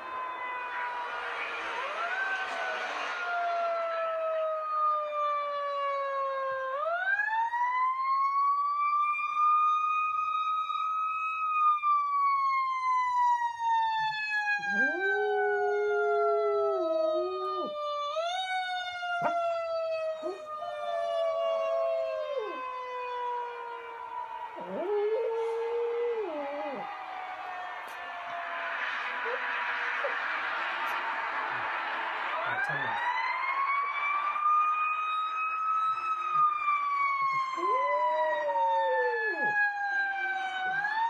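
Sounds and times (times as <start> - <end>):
siren wailing: 0.0 - 41.0
dog howling: 14.6 - 22.7, 24.6 - 27.0, 37.3 - 40.8.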